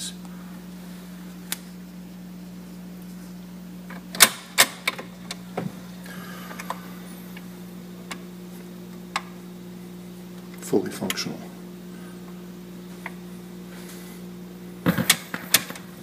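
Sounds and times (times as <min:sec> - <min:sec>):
low hum: 0:00.0 - 0:16.0
turntable mechanism clicks and clunks: 0:03.9 - 0:05.7, 0:09.0 - 0:09.4, 0:14.8 - 0:16.0.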